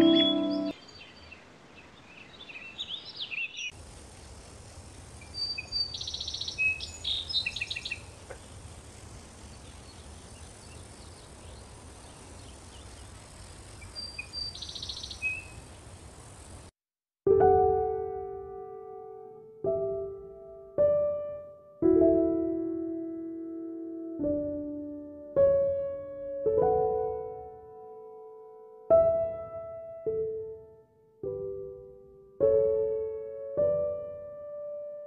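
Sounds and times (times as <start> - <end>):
music: 0.0 - 0.8, 17.3 - 35.0
piano music: 0.0 - 0.8, 17.3 - 35.0
birds chirping and twittering: 0.0 - 3.7, 5.2 - 15.9
steady background hiss: 0.0 - 16.7.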